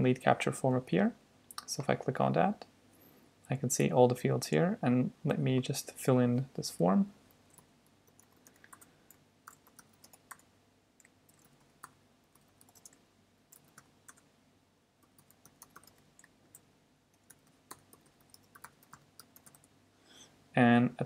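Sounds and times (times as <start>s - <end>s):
faint keyboard typing: 7.2s - 14.3s, 15.0s - 19.8s.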